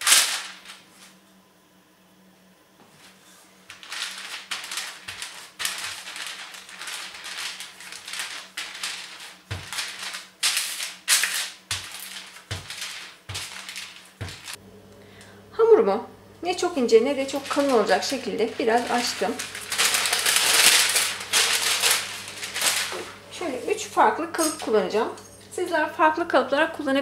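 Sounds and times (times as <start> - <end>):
baking paper crinkling: 0.0 - 1.2, 2.9 - 14.6, 16.5 - 25.1.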